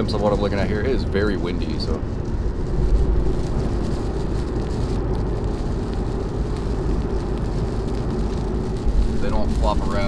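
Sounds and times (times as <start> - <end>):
in-cabin road and engine rumble: 0.0 - 10.0.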